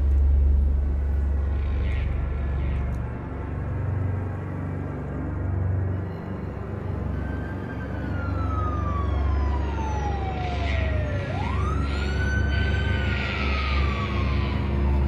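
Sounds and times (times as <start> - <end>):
steady low drone: 0.0 - 15.0
siren wailing: 6.0 - 15.0.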